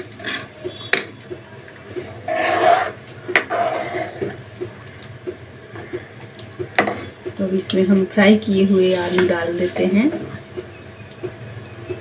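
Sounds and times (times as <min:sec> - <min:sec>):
spoon scraping pan: 0:02.1 - 0:04.4, 0:08.8 - 0:10.3.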